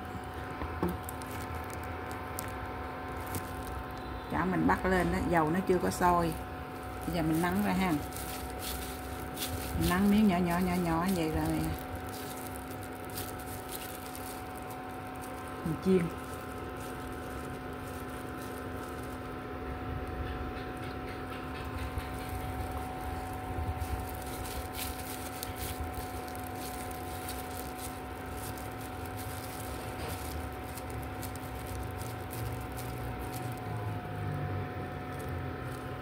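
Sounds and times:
electrical hum: 0.0s - 36.0s
patties sizzling in oil: 5.4s - 19.6s, 22.2s - 36.0s.

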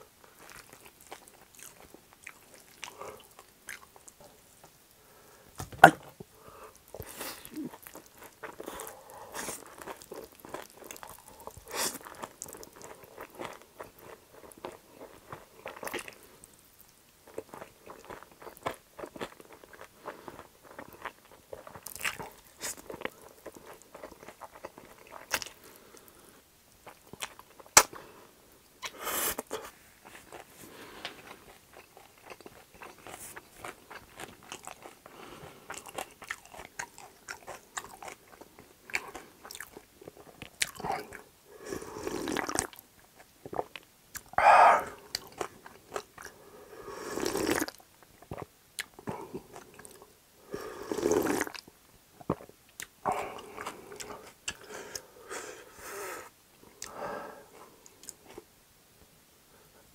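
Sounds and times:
man chewing noodles: 0.3s - 4.2s, 5.8s - 26.2s, 28.8s - 57.0s
slurping: 46.9s - 47.7s, 50.6s - 51.6s.

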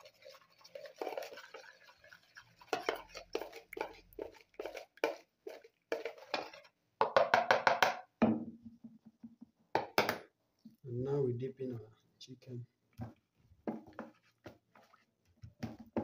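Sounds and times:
utensil whisking in plastic bowl: 0.0s - 6.8s, 13.0s - 16.0s
whisk tapping bowl: 0.0s - 8.0s.

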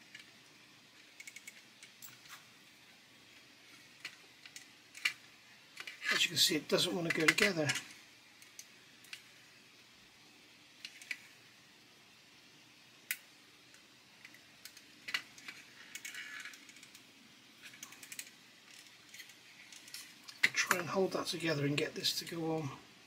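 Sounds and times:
plastic parts clicking and tapping: 1.0s - 2.3s, 3.7s - 6.0s, 17.6s - 20.8s.

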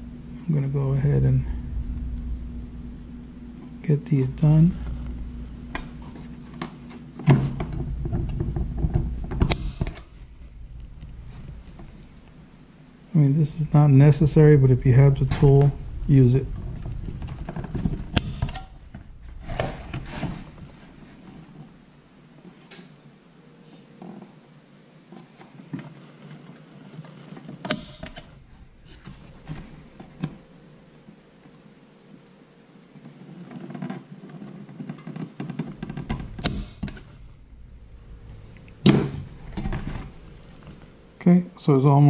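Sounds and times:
center punch snapping: 9.3s - 10.2s, 18.1s - 18.8s, 27.7s - 28.3s, 36.1s - 37.2s.

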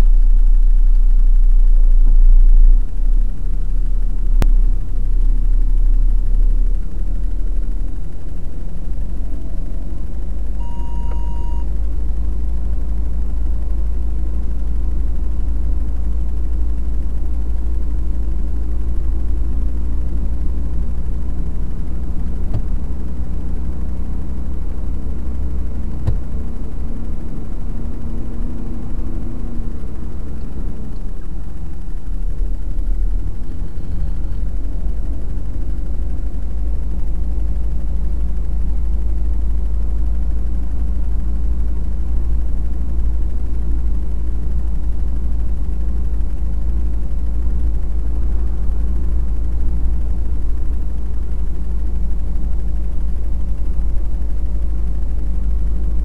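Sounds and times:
truck diesel engine rumble: 0.0s - 56.0s
short electronic beep: 10.6s - 11.7s.

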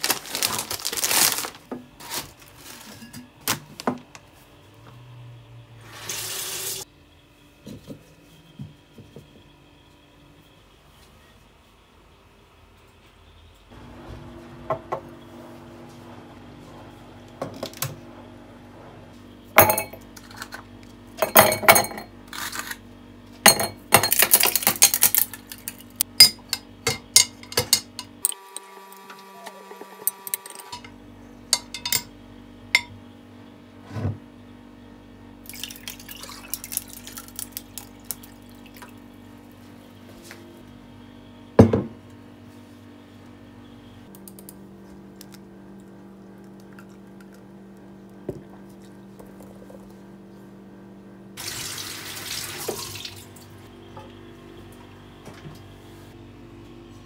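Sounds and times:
dishes and pans clattering: 26.2s - 28.2s
water running: 51.4s - 53.6s.

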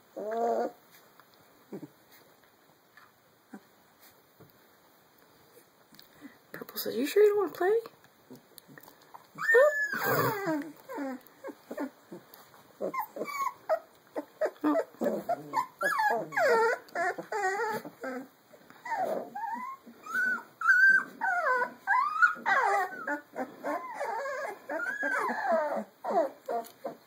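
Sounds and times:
puppies whimpering and yipping: 0.1s - 0.8s, 9.3s - 12.2s, 12.8s - 27.0s.

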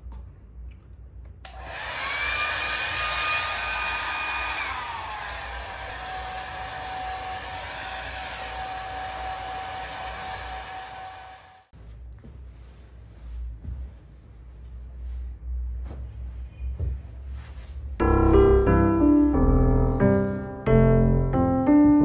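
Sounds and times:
hair dryer blowing: 1.5s - 11.7s.

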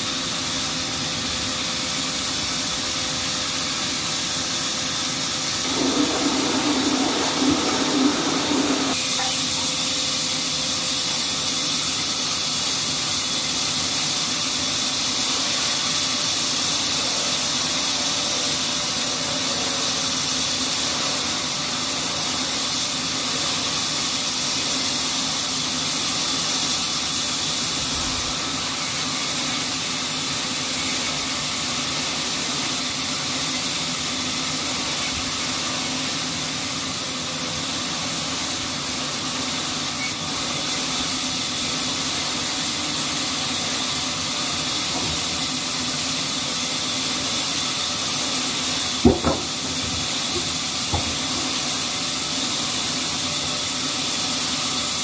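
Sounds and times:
band saw blade hissing through log: 5.6s - 9.0s
low machine hum: 5.6s - 9.0s.

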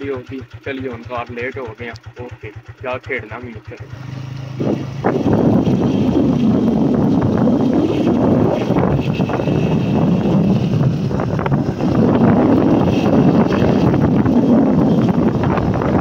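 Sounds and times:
motorcycle engine running: 0.0s - 16.0s
wind buffeting microphone: 3.8s - 16.0s.

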